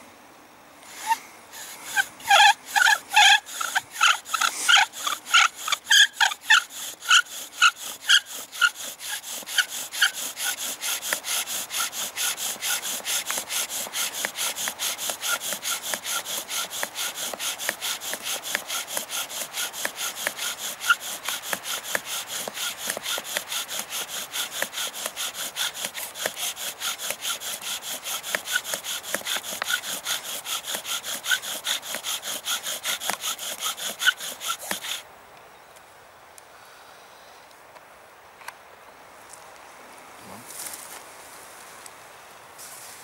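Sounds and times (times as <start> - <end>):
bow drill spindle rubbing and squeaking: 1.0 - 35.0.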